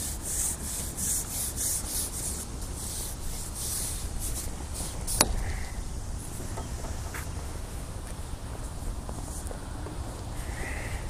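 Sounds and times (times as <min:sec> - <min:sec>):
fishing pole rasping on its rest: 0:03.6 - 0:07.5.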